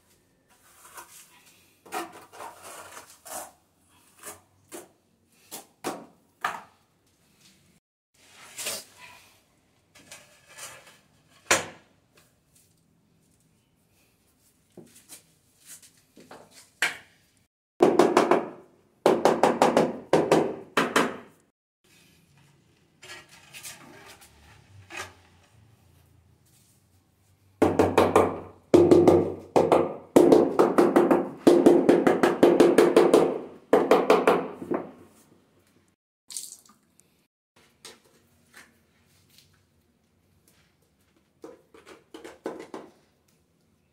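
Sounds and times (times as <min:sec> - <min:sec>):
trowel scraping mortar on concrete: 0:00.5 - 0:05.5, 0:10.0 - 0:11.5, 0:22.3 - 0:25.6.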